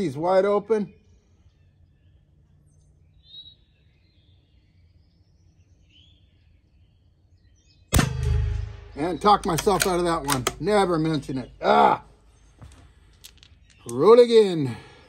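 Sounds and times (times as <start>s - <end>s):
faint bird chirps: 0.8s - 7.9s
rifle shot: 7.9s - 10.9s.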